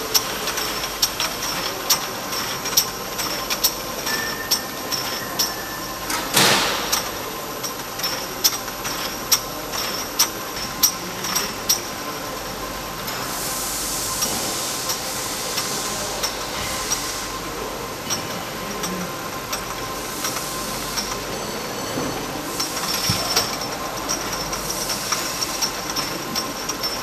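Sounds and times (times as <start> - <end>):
machine clicks and knocks: 0.0 - 11.9
filling machine running: 0.0 - 27.0
hiss: 13.2 - 17.6.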